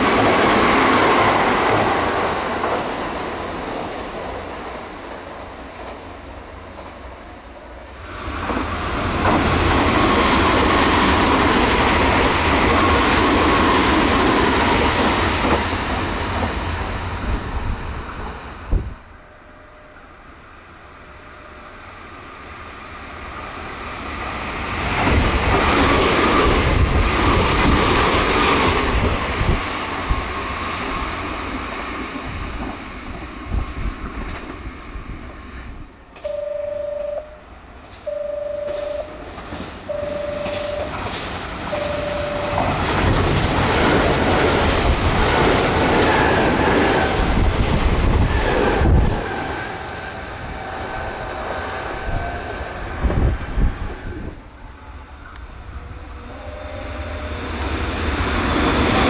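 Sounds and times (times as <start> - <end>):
express train passing: 0.0 - 59.0
electronic beeps: 38.1 - 39.2, 39.9 - 41.0, 41.7 - 42.8.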